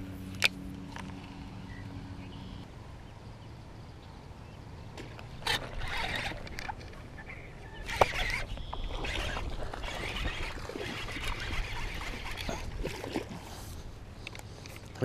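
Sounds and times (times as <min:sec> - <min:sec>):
fish thrashing in water: 0:07.8 - 0:13.4.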